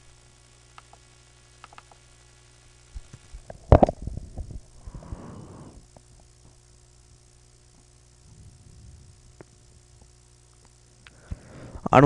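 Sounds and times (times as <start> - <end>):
steady low hum: 0.0 - 12.0
faint clicks: 0.7 - 2.0.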